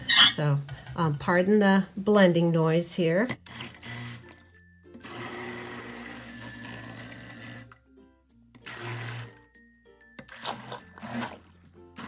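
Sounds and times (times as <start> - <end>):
stick blender running: 3.4 - 7.8, 8.6 - 9.4, 10.2 - 12.0.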